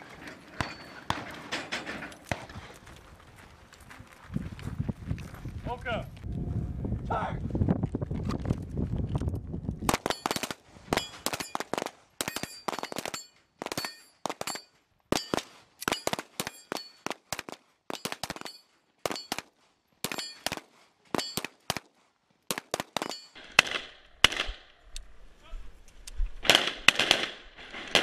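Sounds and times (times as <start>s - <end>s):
metallic target ring: 0.3s - 2.2s, 12.2s - 17.0s, 20.1s - 20.5s.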